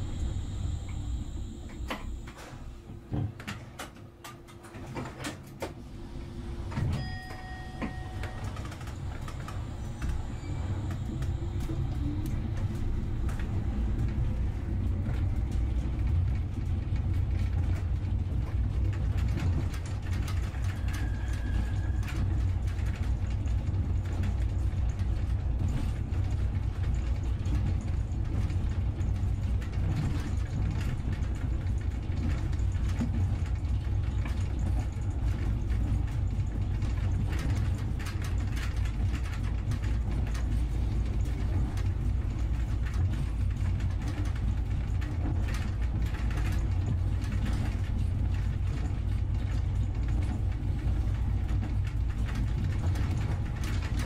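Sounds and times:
short steady beep: 0:07.0 - 0:08.6.

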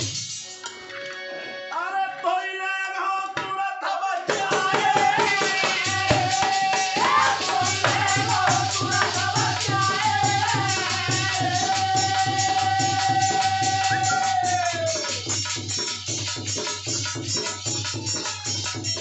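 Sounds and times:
hand drum beat: 0:04.3 - 0:19.0.

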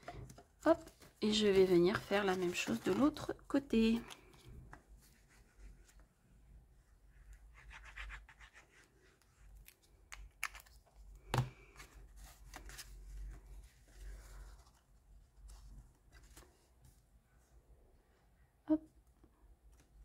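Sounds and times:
cardstock rustling and scraping: 0:00.0 - 0:06.0.

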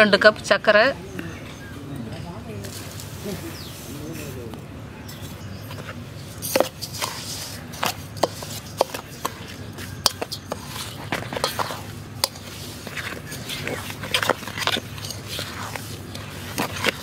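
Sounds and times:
spoon scraping in metal bowl: 0:05.1 - 0:17.0.

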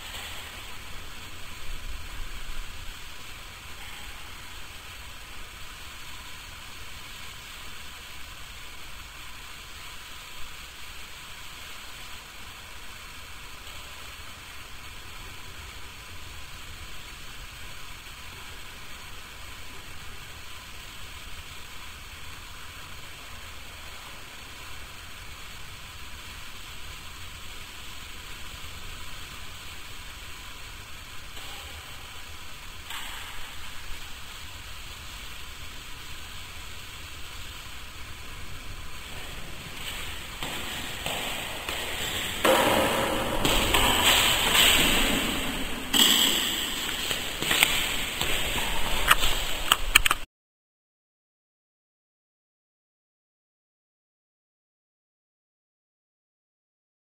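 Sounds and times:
steady hiss: 0:00.0 - 0:50.3.

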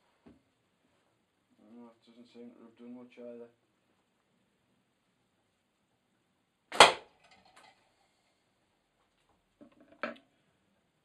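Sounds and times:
catapult shot cracking: 0:06.7 - 0:07.1.

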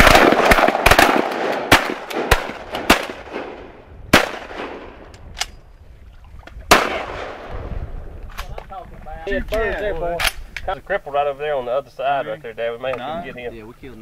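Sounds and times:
shotgun shots echoing: 0:00.0 - 0:05.1, 0:06.7 - 0:07.6.

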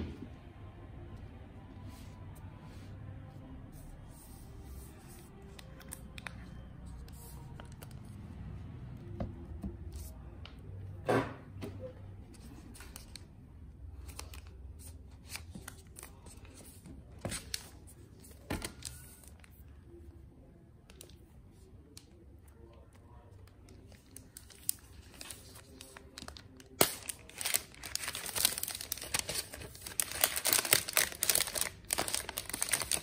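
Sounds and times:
protective wrap crinkling: 0:24.1 - 0:33.0.

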